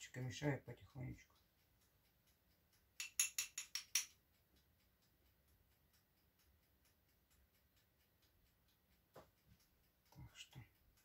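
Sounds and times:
faint regular ticking: 0:00.0 - 0:11.0
spoon tapping glass: 0:03.0 - 0:04.1.

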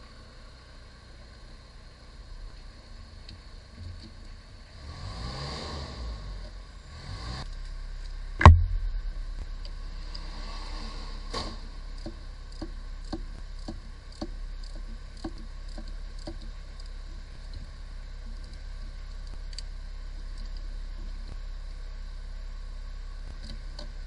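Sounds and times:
loud metallic knock: 0:08.4 - 0:09.0.

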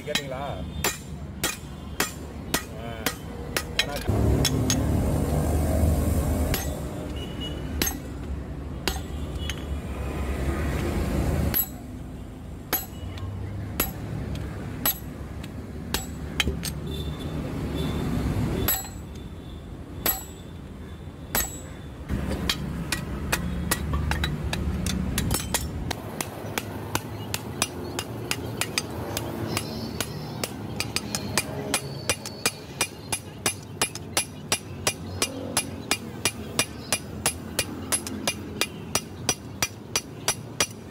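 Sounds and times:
hammer striking hot steel on anvil: 0:00.1 - 0:04.9, 0:06.5 - 0:06.8, 0:07.8 - 0:08.1, 0:08.8 - 0:09.1, 0:11.5 - 0:11.9, 0:12.7 - 0:13.0, 0:13.8 - 0:14.0, 0:14.8 - 0:15.1, 0:15.9 - 0:16.6, 0:18.7 - 0:19.0, 0:20.0 - 0:20.4, 0:21.3 - 0:40.8.

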